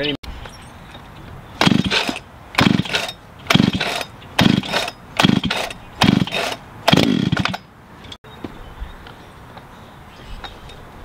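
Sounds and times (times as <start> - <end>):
chainsaw starter cord yanks: 1.6 - 7.7
engine cranking: 1.6 - 7.7.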